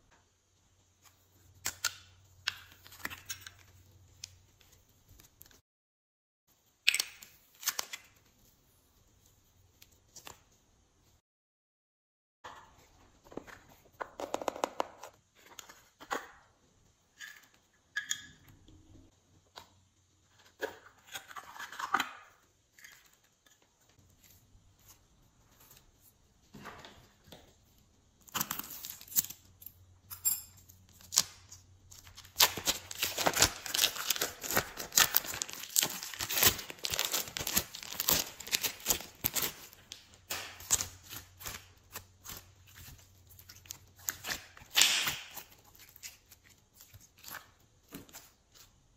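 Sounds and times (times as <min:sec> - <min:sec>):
scissors snipping plastic bag: 0:32.1 - 0:42.4.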